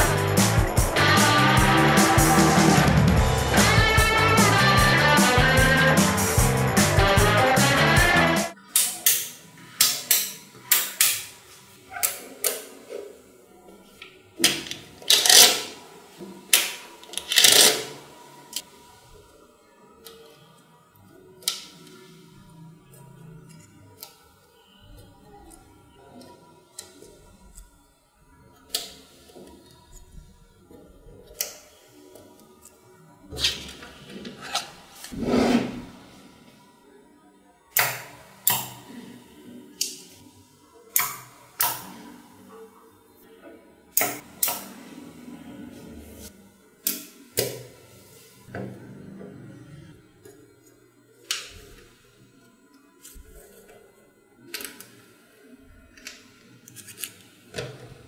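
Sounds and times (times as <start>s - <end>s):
rattling scrape: 34.5s - 35.9s.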